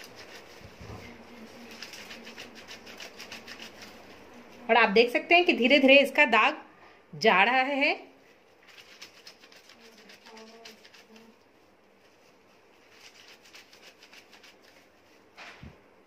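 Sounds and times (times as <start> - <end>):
wet cloth squishing and rubbing: 8.3 - 15.3.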